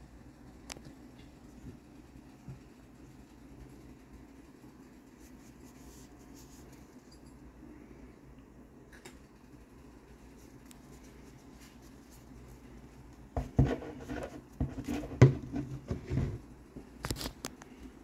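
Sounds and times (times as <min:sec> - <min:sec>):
plastic toy rubbing and knocks: 0:13.4 - 0:16.4.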